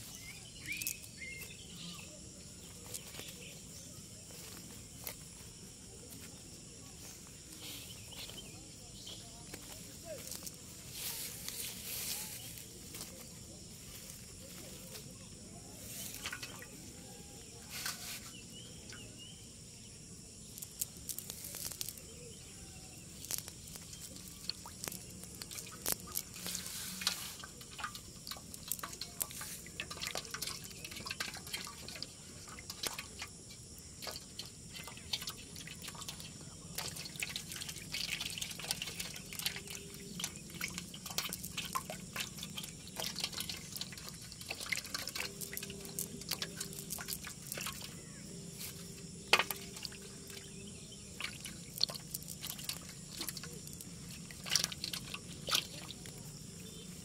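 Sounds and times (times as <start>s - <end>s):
fish splashing in metal basin: 15.8s - 19.0s, 22.8s - 56.9s.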